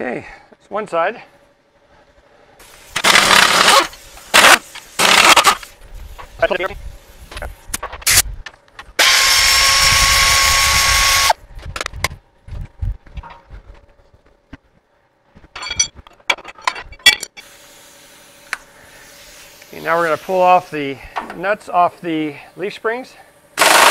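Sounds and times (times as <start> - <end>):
impact wrench whining: 2.9 - 5.7, 9.0 - 11.4, 23.6 - 23.9
metallic clinks of tools: 15.6 - 17.4.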